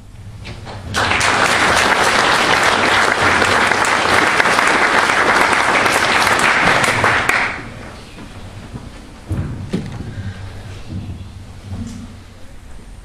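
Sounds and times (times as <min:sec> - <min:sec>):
crowd applauding: 0:00.7 - 0:08.0.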